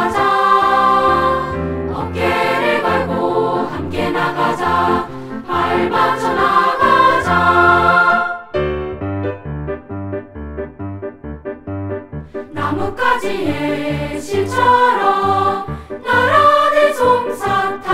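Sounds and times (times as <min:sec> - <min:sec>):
children's choir singing: 0:00.0 - 0:08.5, 0:12.4 - 0:17.9
piano accompaniment: 0:00.0 - 0:17.9.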